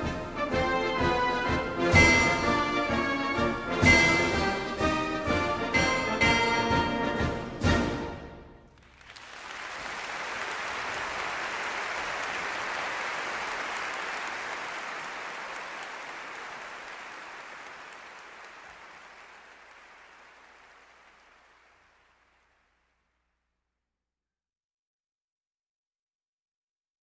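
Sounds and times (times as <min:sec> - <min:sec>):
applause: 0:08.7 - 0:23.1.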